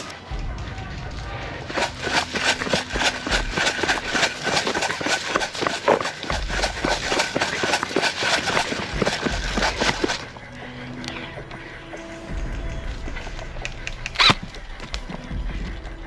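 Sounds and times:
running footsteps on dry leaves: 0:00.0 - 0:10.5
gear and clothing rattling: 0:01.7 - 0:10.5.

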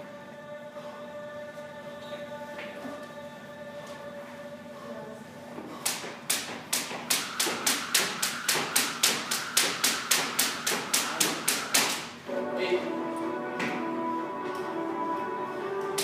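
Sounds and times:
jump rope slapping gym floor: 0:05.8 - 0:12.1.

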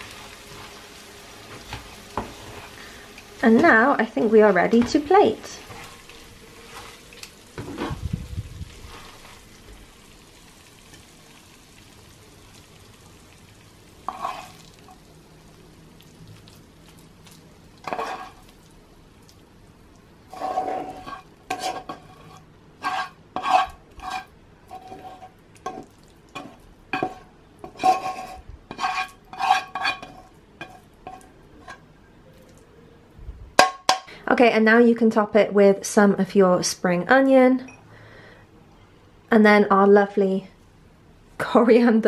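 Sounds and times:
metal tongs scraping frying pan: 0:14.1 - 0:14.6, 0:17.8 - 0:18.5, 0:20.3 - 0:31.8.

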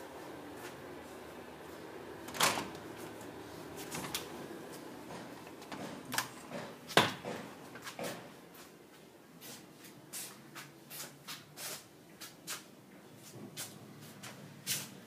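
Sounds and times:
door knocks and clunks: 0:05.1 - 0:08.3.

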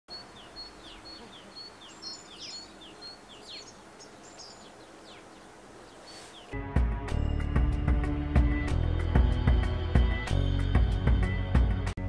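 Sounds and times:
songbirds chirping: 0:00.1 - 0:06.6.

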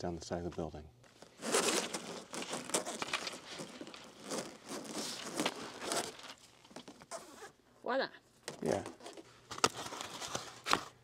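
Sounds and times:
rustling and crinkling: 0:01.0 - 0:07.6, 0:08.4 - 0:11.0.

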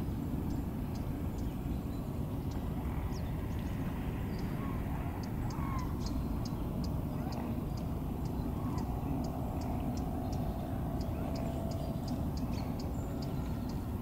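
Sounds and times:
steady low rumble: 0:00.0 - 0:14.0.

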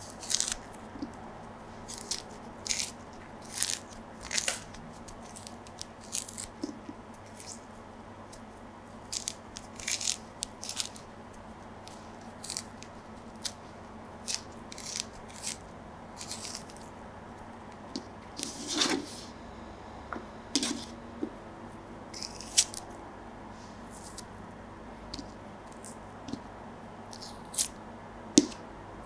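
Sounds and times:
orange peel tearing by hand: 0:00.0 - 0:01.2, 0:01.9 - 0:07.7, 0:09.0 - 0:11.0, 0:11.9 - 0:13.6, 0:14.2 - 0:16.9, 0:22.2 - 0:22.8.

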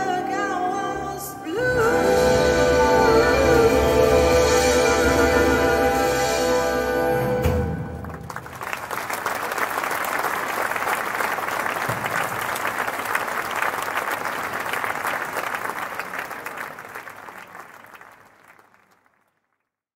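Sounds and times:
audience applauding: 0:07.9 - 0:19.5.

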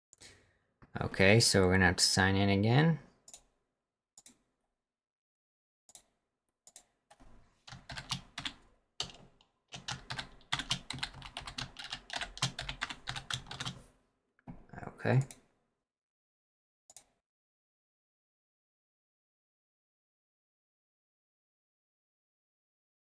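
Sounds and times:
typing on computer keyboard: 0:06.7 - 0:13.8.

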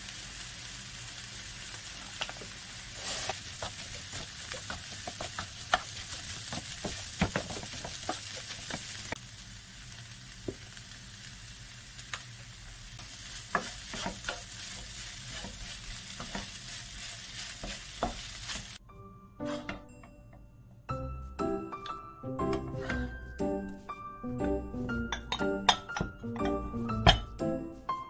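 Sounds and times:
rice sizzling in frying pan: 0:00.0 - 0:18.8
spatula scraping pan: 0:03.0 - 0:09.0, 0:13.3 - 0:18.8, 0:19.4 - 0:19.8, 0:22.4 - 0:23.2.

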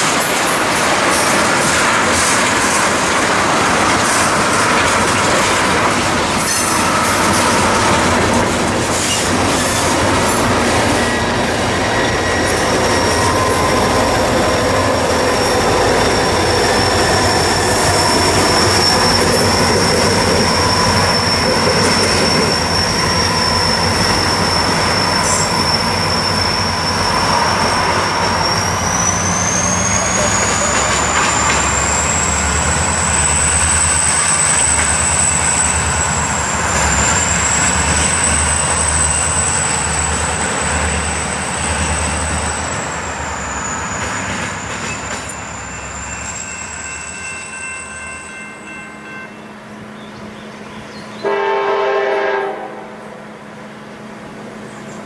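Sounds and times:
wheels clicking over rail joints: 0:00.0 - 0:13.8, 0:30.0 - 0:36.1
freight train rolling past: 0:00.0 - 0:55.0
high-pitched wheel squeal: 0:05.6 - 0:48.4.

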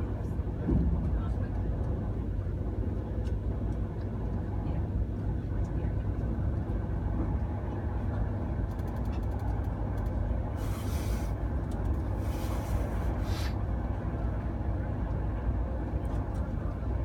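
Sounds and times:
electric train rumble: 0:00.0 - 0:17.0
short bursts of hiss: 0:10.6 - 0:11.4.

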